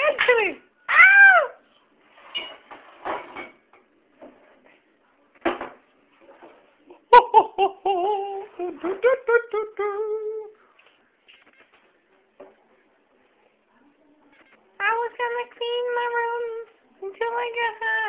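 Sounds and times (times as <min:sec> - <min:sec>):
person humming in high voice: 0:07.8 - 0:10.6.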